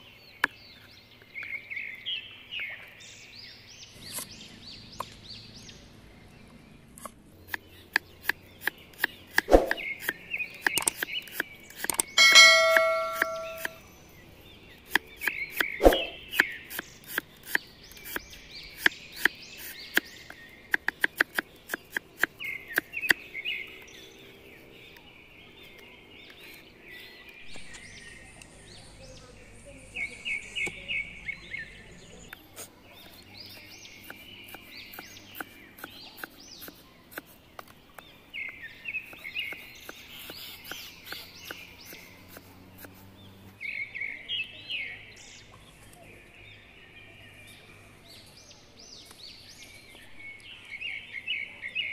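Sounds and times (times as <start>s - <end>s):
birds chirping: 0.0s - 51.9s
cleaver chopping on wooden board: 7.5s - 13.8s, 14.9s - 20.1s, 20.7s - 23.2s.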